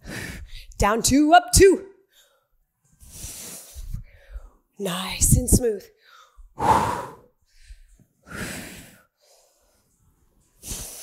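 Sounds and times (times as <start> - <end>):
woman exhaling forcefully: 6.6 - 7.3.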